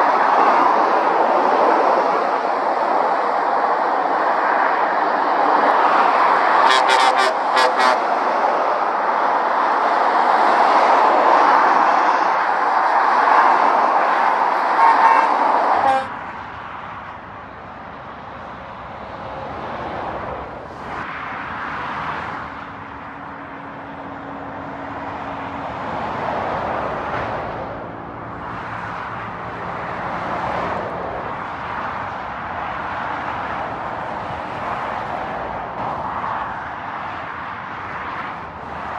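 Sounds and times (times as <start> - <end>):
motorway traffic rushing: 0.0 - 38.9.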